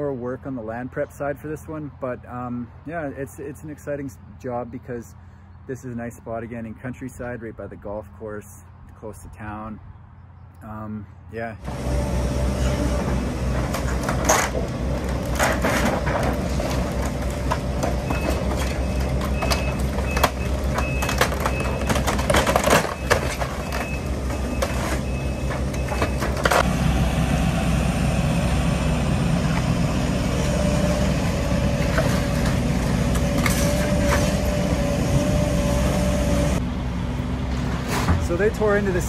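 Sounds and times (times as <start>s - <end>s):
hydraulic whine: 11.6s - 22.1s, 22.8s - 36.6s
excavator diesel engine running: 11.6s - 39.0s
wood and siding cracking and crashing: 13.5s - 26.6s.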